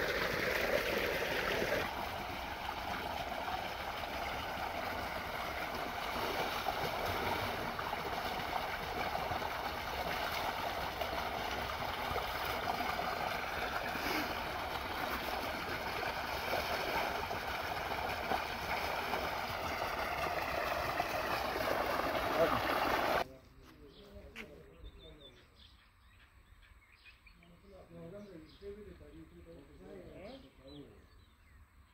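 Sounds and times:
water gushing from a pipe: 0:00.0 - 0:23.2.

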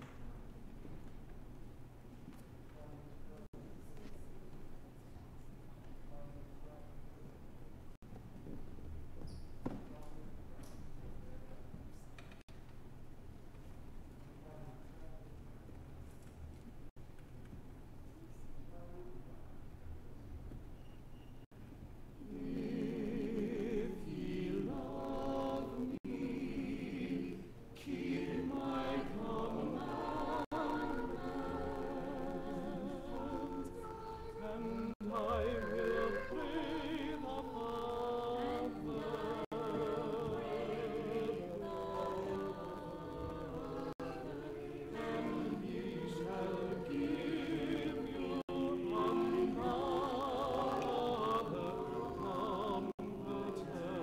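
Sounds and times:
church choir singing: 0:22.2 - 0:54.0.

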